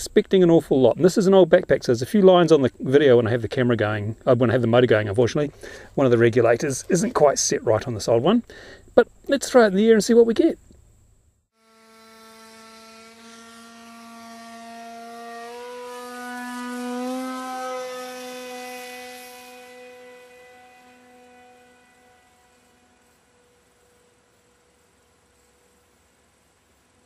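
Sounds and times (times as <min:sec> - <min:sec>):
model plane motor whining: 0:11.6 - 0:25.8.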